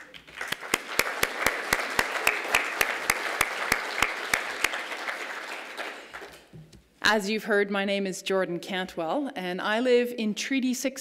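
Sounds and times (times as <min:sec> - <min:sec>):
audience applauding: 0:00.0 - 0:06.5
close sharp hand claps: 0:00.0 - 0:06.5.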